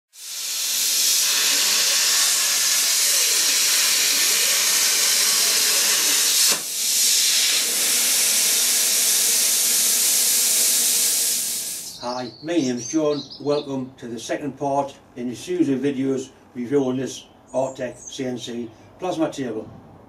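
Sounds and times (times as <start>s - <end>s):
plasma cutter hissing: 0.1s - 12.0s.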